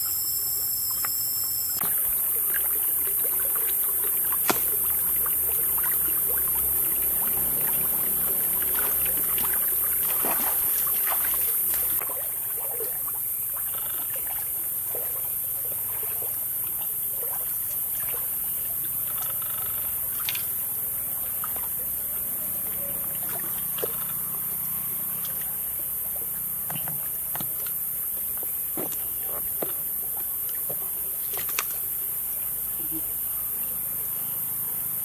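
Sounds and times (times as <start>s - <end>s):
flowing water hiss: 0.0s - 35.0s
feet splashing through water: 1.8s - 12.9s
sharp snap: 4.4s - 4.8s.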